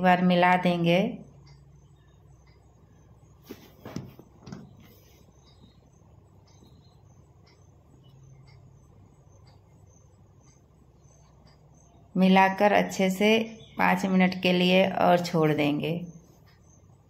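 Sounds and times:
faint low hum: 0.0 - 17.0
faint ticks: 1.2 - 3.4, 4.7 - 13.8, 16.0 - 17.0.

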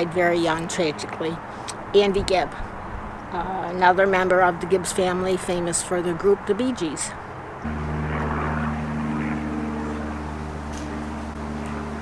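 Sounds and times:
steady engine drone: 7.6 - 12.0.

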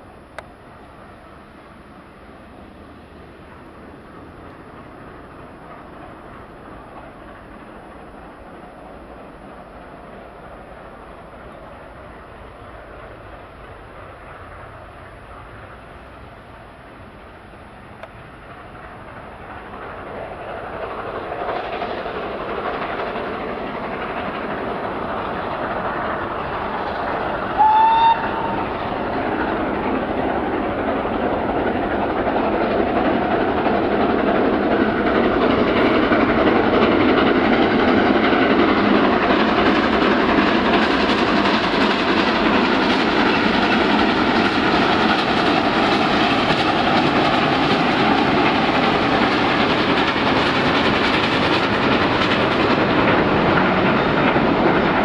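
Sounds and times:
steam locomotives approaching: 0.0 - 55.0
steam whistle: 27.6 - 28.6.

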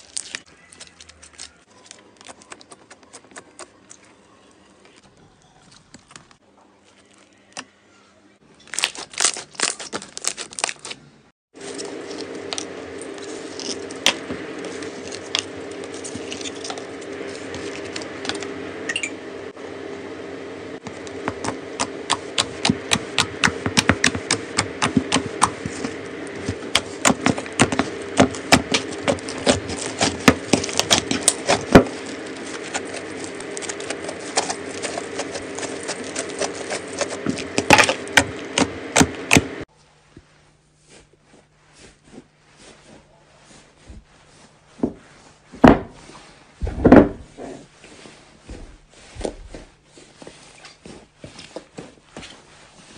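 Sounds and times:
low hum: 11.6 - 39.7.

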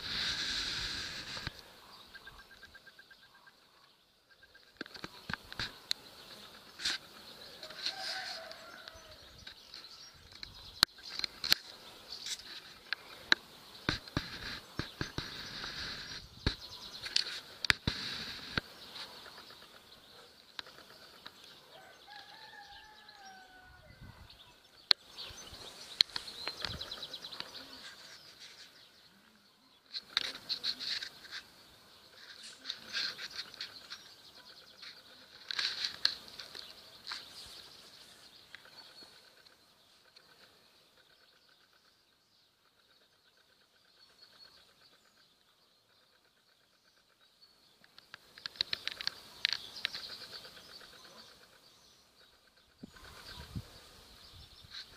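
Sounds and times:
rustling and crackling clicks: 0.0 - 2.8, 4.6 - 21.6, 24.7 - 29.0, 29.8 - 40.6, 47.8 - 51.6
distant bird call: 0.0 - 54.9.

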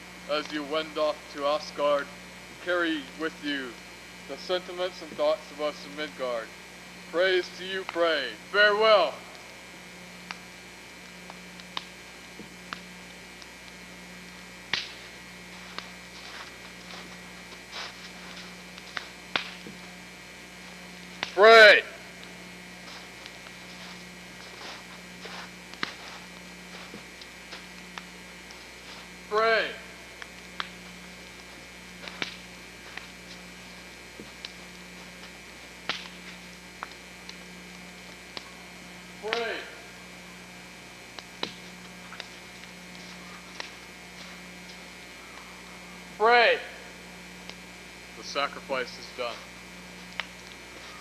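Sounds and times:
campfire crackling: 0.0 - 51.0
low hum: 0.0 - 51.0
sharp clicks and pops: 11.0 - 13.9, 14.6 - 15.1, 18.7 - 19.9, 25.7 - 26.0, 30.2 - 33.4, 35.8 - 38.5, 41.1 - 43.9, 50.0 - 50.6.

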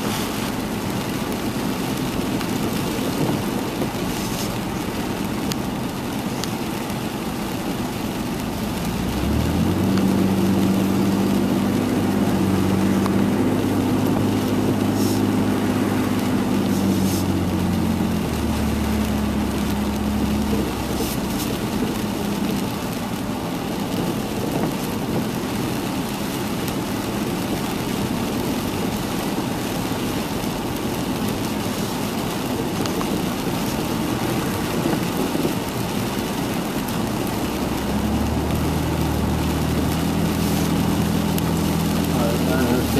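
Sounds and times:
rain and wet tyres on road: 0.0 - 42.9
low engine drone: 8.6 - 23.2, 37.1 - 42.9.

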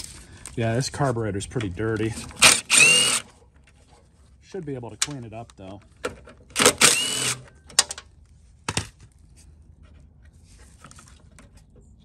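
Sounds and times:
cordless driver spinning: 2.3 - 3.3, 6.6 - 7.4.

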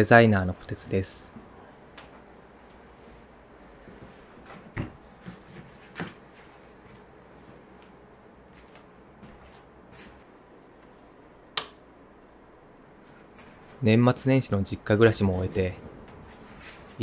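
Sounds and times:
quilt and futon rustling: 16.1 - 17.0.

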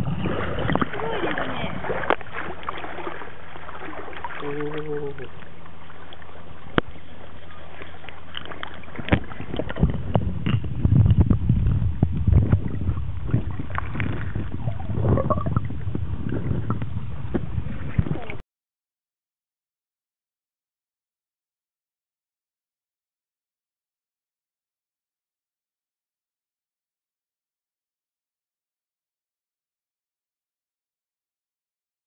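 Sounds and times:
water sloshing and splashing: 0.0 - 18.4.

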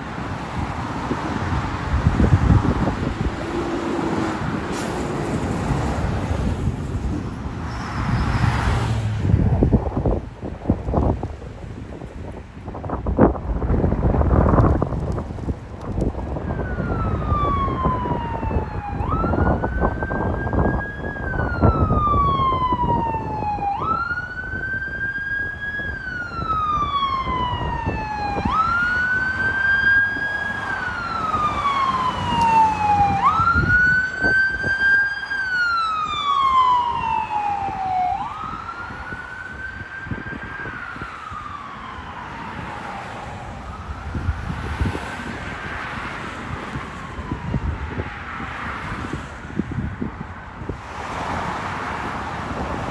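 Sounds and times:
traffic: 0.0 - 52.9
wind noise: 0.0 - 52.9
fire siren wailing: 0.3 - 6.6, 14.0 - 49.8.

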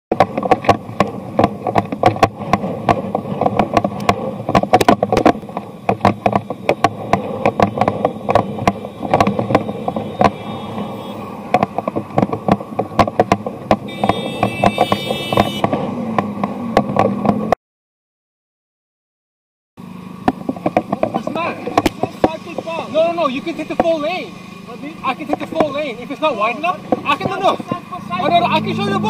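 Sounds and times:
bicycle rattling over road: 0.1 - 17.6, 19.8 - 29.0
steady road rumble: 0.1 - 17.6, 19.8 - 29.0
car horn: 9.0 - 11.5, 13.8 - 15.8.

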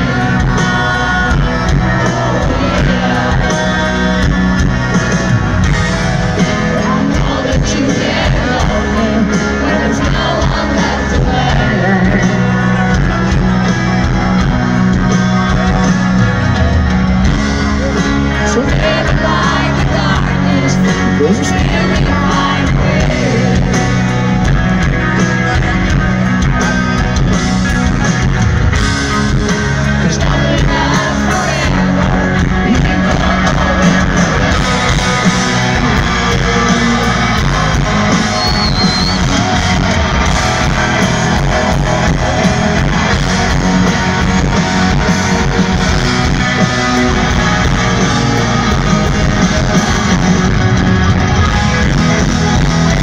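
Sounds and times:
person singing: 0.0 - 5.2, 6.2 - 13.6, 17.8 - 24.2, 30.0 - 39.8
rock band playing live: 0.0 - 53.0.

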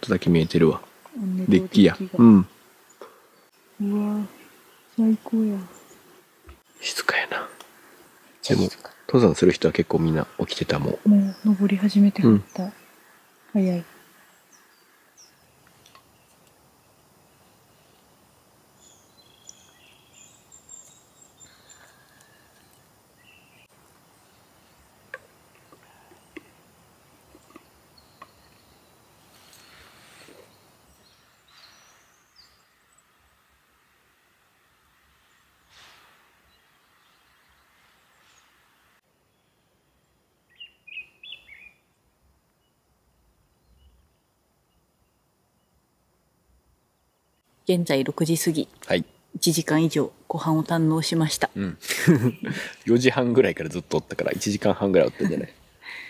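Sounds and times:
soft outdoor hiss: 0.0 - 56.0
songbird chirping: 0.0 - 56.0
birdsong whistles and trills: 18.8 - 24.8, 27.4 - 33.1, 39.3 - 41.9.

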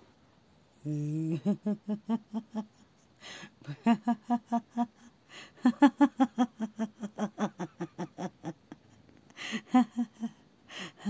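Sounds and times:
woman laughing: 0.9 - 2.8, 3.6 - 11.0
breathy gasps: 3.2 - 3.6, 10.7 - 11.0.

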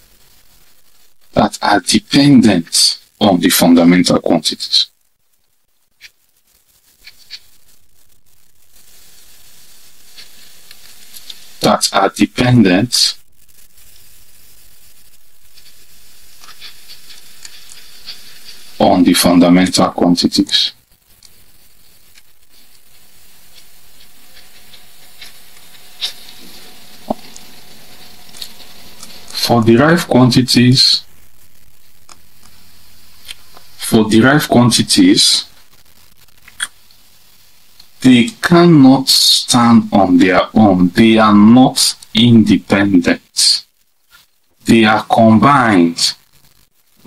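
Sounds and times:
low hiss: 0.0 - 47.0.

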